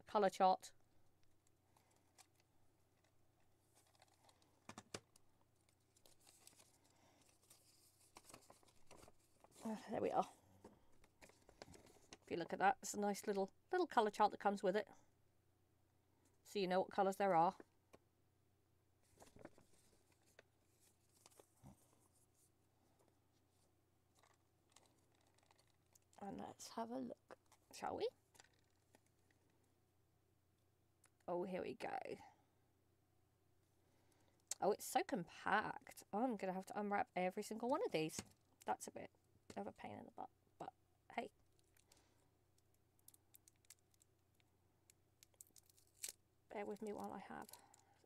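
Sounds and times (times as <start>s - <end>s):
cardboard and paper handling: 5.6s - 10.0s, 19.0s - 22.5s.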